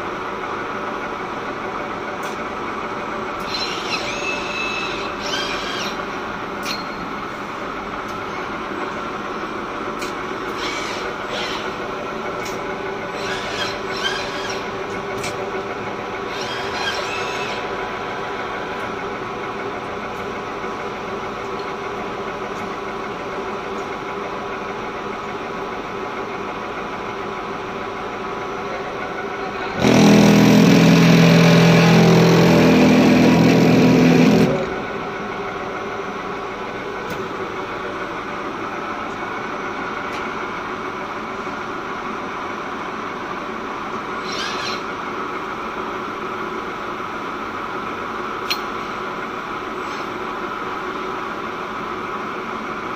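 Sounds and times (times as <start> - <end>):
machine hum: 2.6 - 48.4
loud hum with rushing edge: 29.8 - 38.8.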